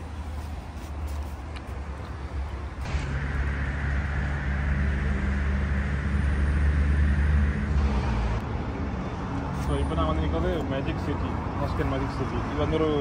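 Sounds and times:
motor vehicle low rumble: 0.0s - 8.7s.

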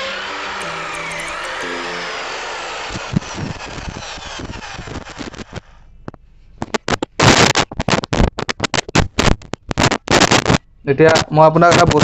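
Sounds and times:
electric drill winding down: 0.0s - 5.9s.

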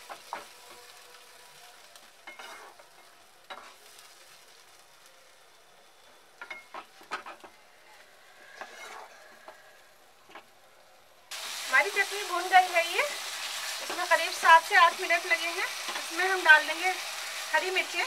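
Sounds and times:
paste sizzling in hot oil: 0.0s - 5.0s, 11.3s - 18.0s
spatula stirring and scraping: 2.3s - 3.8s, 8.4s - 9.6s.

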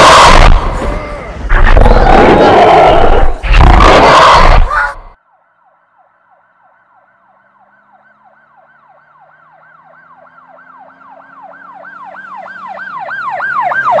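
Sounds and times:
emergency vehicle siren yelping: 4.7s - 14.0s.

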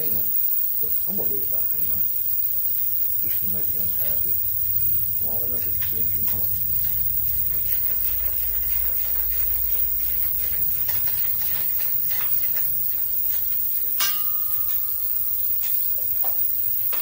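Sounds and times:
background hiss: 0.0s - 17.0s
metal clink: 10.2s - 17.0s.

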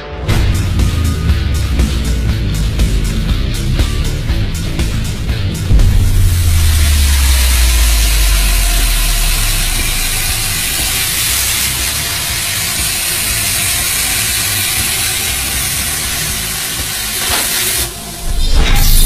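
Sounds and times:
low rumble: 0.3s - 12.6s
loud hissing: 0.3s - 19.0s.

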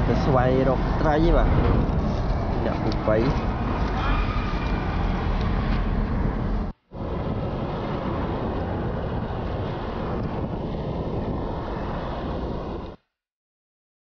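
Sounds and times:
wind rushing over microphone: 0.0s - 13.0s
road noise: 0.0s - 13.1s.

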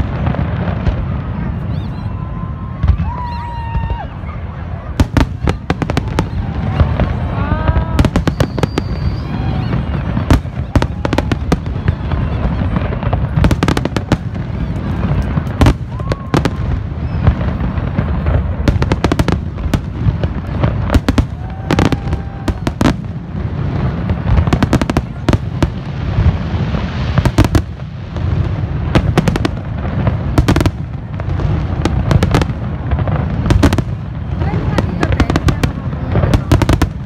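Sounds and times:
fireworks bursting and crackling: 0.0s - 37.0s.

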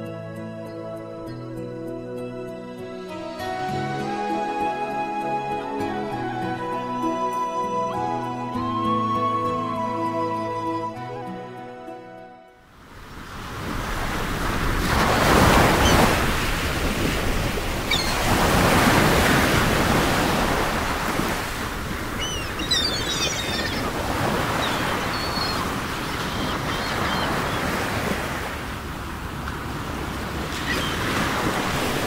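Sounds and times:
wind: 12.6s - 32.0s
surf waves rushing: 12.8s - 32.0s
faint high squeaks: 22.2s - 23.9s.

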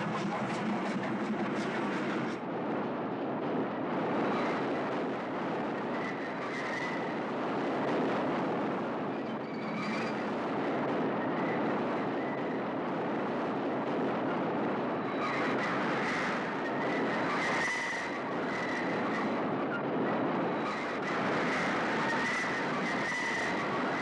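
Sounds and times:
train wheels rumbling on rails: 0.0s - 2.4s
faint high squeal: 5.9s - 7.2s.

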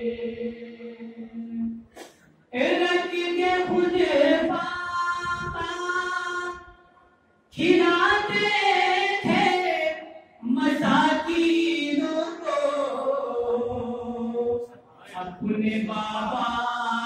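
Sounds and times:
man chanting through microphone: 7.6s - 17.0s.

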